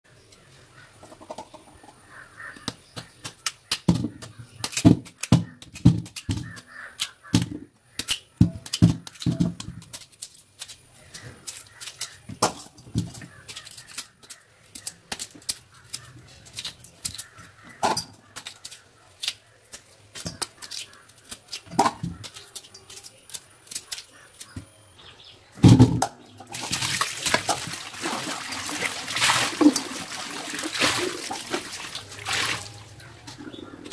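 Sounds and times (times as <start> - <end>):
tap water running into bowl: 26.6 - 32.8.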